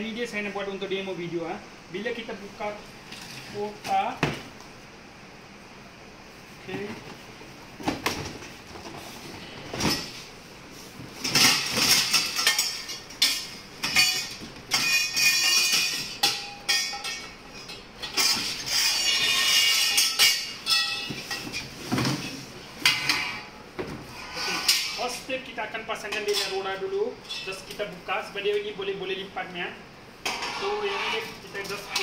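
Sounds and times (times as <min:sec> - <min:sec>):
metal tubes clanking: 0:11.2 - 0:21.8.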